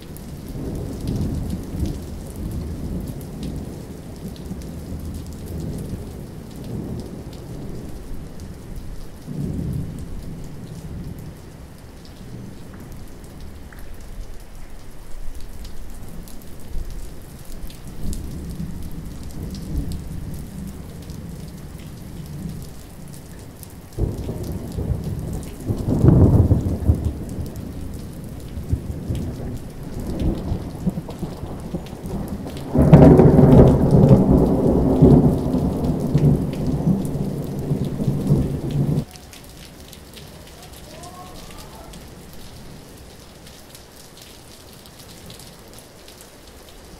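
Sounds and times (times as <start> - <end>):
rain: 0.0 - 46.9
rolling thunder: 9.2 - 11.4, 23.9 - 39.1.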